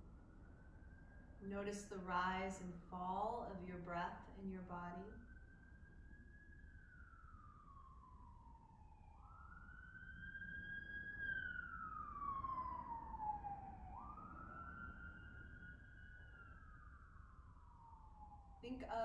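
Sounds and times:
siren wailing: 4.9 - 19.0.

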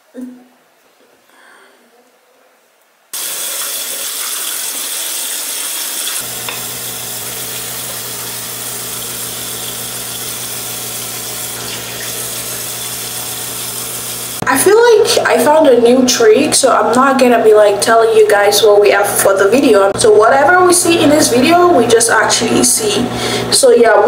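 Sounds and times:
running water hissing: 3.2 - 14.4.

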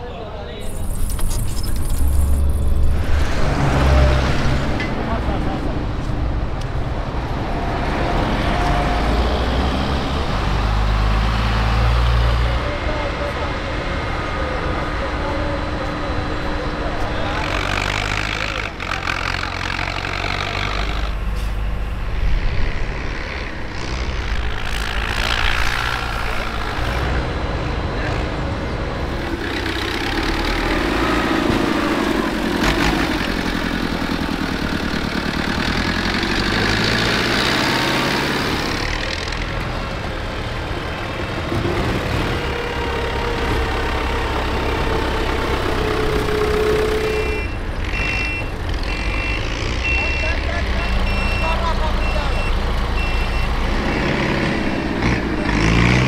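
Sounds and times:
diesel tractor engine under load: 0.0 - 56.0
truck reversing beeper: 20.2 - 22.4, 45.8 - 54.6.

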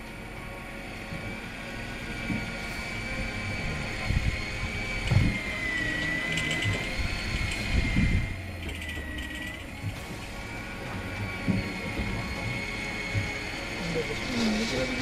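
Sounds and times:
mechanical whine: 0.0 - 15.0
ratchet-like clicking: 6.0 - 10.0.

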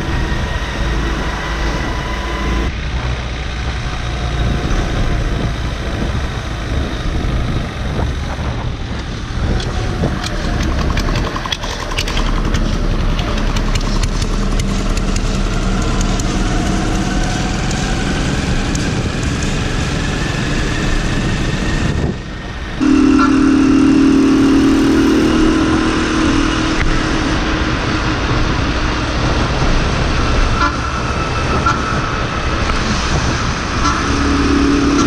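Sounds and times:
road noise: 0.0 - 35.0
wind noise: 0.0 - 35.0
clicks and rattles: 9.6 - 16.3.

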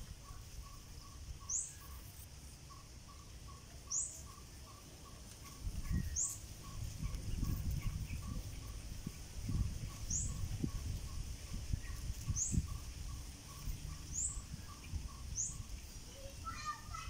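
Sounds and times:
high bird chirps: 0.1 - 8.8
wind rumble on microphone: 5.4 - 17.0.

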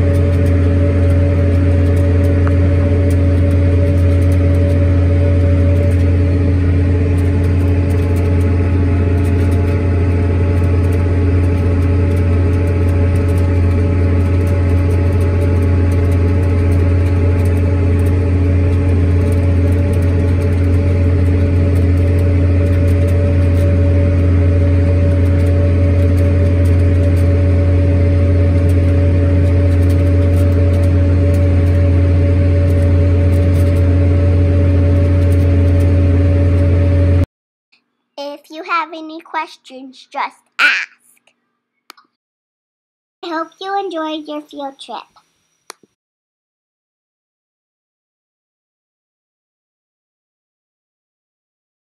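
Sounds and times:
tractor engine droning: 0.0 - 37.3.

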